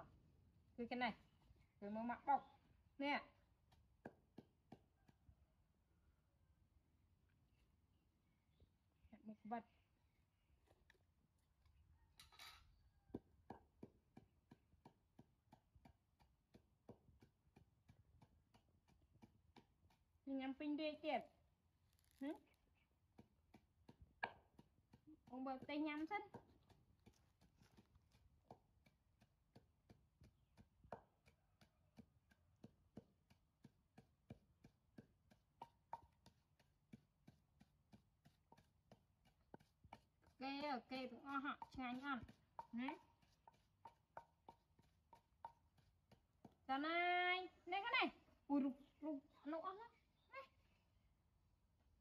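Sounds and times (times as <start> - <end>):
wooden pestle pounding in mortar: 3.3 - 5.6, 13.1 - 21.0, 22.4 - 47.5.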